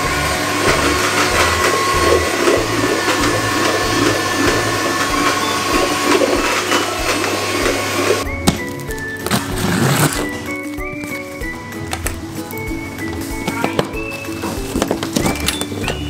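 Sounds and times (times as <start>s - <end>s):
electric hand mixer running: 0.0s - 8.3s.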